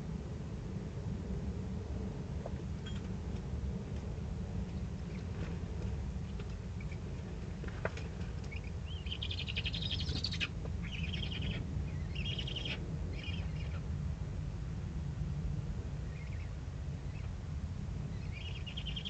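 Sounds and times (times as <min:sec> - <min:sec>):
steady low hum: 0:00.0 - 0:19.0
owlet rasping begging calls: 0:08.5 - 0:13.8, 0:18.2 - 0:19.0.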